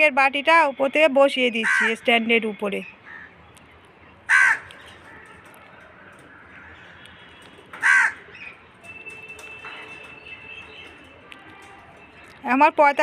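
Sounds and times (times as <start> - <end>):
crow cawing: 1.6 - 2.0, 3.0 - 3.4, 4.3 - 5.2, 6.3 - 7.1, 7.8 - 8.5.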